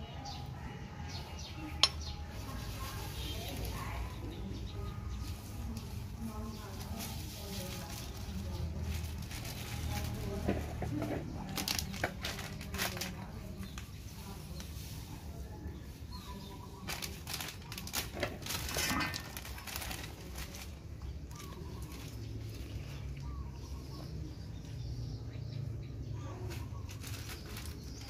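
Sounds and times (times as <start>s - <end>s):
plastic bag crinkling: 6.1s - 13.9s, 16.7s - 22.8s, 26.5s - 28.0s.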